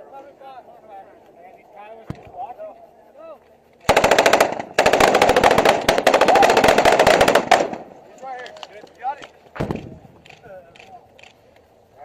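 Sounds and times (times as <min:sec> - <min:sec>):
automatic weapon fire: 0:03.8 - 0:07.9.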